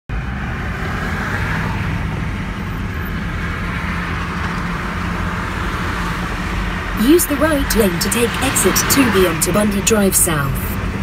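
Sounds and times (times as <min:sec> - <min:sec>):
car road noise rumble: 0:00.1 - 0:11.0.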